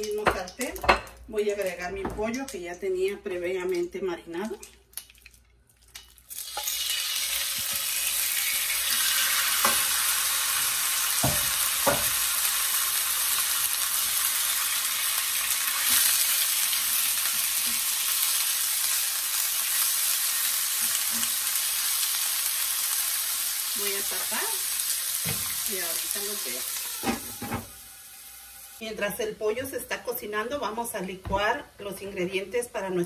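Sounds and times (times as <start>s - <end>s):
chicken sizzling in hot oil: 6.2s - 29.2s
knocks in pan: 11.2s - 12.2s, 25.2s - 25.6s.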